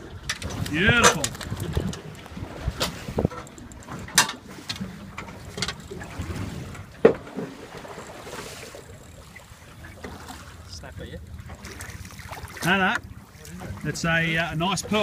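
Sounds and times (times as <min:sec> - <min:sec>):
water sloshing: 0:00.0 - 0:15.0
wind: 0:00.0 - 0:15.0.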